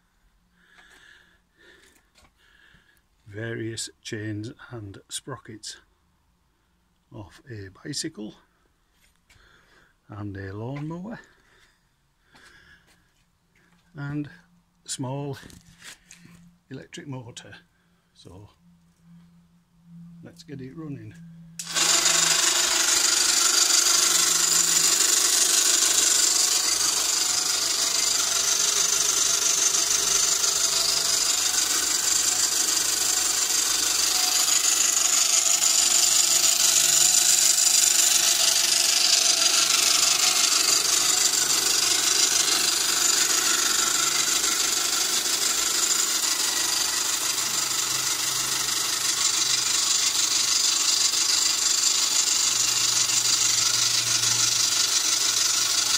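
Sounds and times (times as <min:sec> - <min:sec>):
electric motor driving drill: 0:21.6 - 0:55.9.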